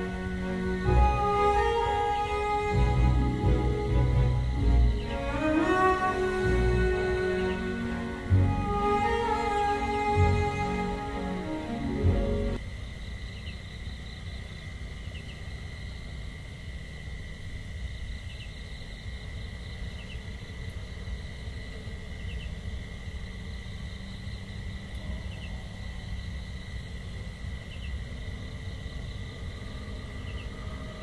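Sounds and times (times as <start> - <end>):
high drone: 0.0 - 12.6.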